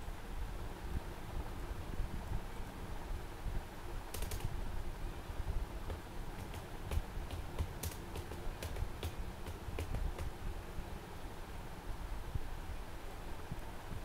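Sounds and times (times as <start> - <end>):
typing on keyboard: 4.1 - 4.5, 5.9 - 10.3.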